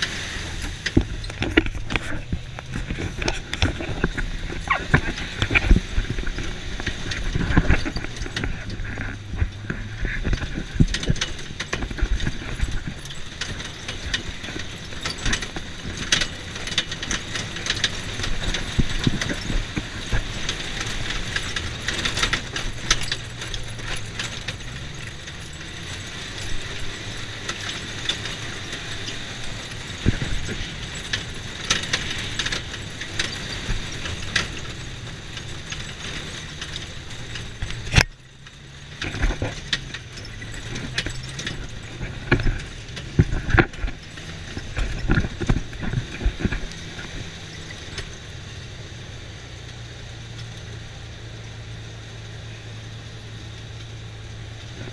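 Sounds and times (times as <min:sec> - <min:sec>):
vehicle engine hum: 0:00.0 - 0:54.9
body parts rattling and knocking: 0:00.5 - 0:48.4.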